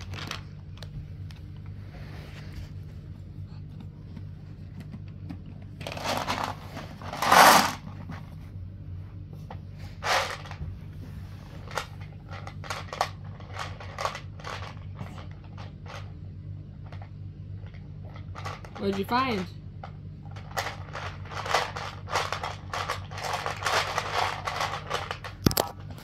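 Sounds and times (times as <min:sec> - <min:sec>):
plastic bag crinkling: 0:00.0 - 0:00.9, 0:20.4 - 0:26.0
steady low hum: 0:00.0 - 0:26.0.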